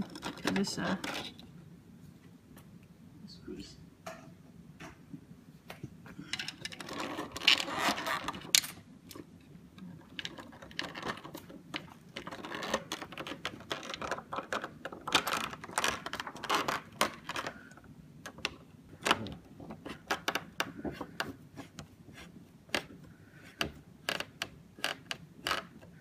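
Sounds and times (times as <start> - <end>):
plastic scraping: 6.5 - 8.8, 10.0 - 26.0.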